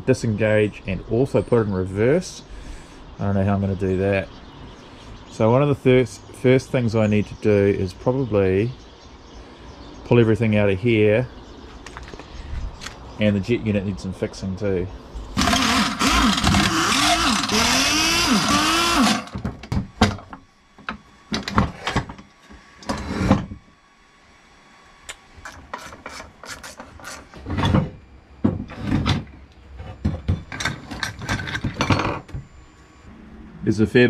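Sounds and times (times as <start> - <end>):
pneumatic wrench spinning: 15.4 - 19.3
metal parts clanking: 30.4 - 32.3.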